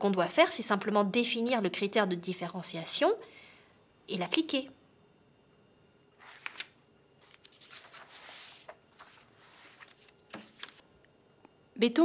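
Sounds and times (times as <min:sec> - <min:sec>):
faint rustling and handling: 0:06.2 - 0:10.9.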